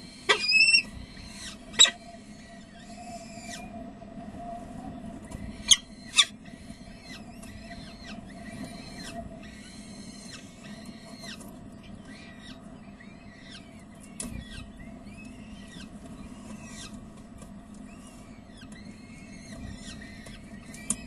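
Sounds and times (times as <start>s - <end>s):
falcon chick cheeping: 0.0s - 3.7s
steady low hum: 0.0s - 21.0s.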